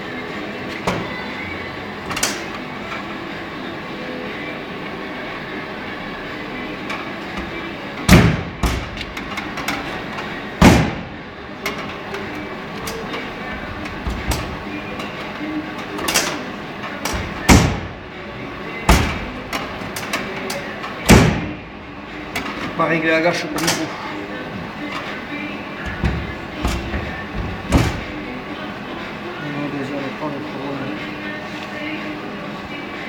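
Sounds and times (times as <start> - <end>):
car door thudding shut: 8.1 - 9.0, 10.6 - 11.2, 17.2 - 18.0, 18.9 - 19.3, 21.1 - 21.6.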